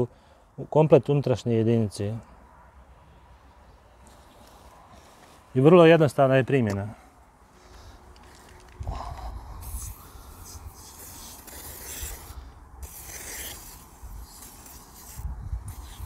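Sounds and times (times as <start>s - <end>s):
aerosol can hissing: 9.5s - 16.0s.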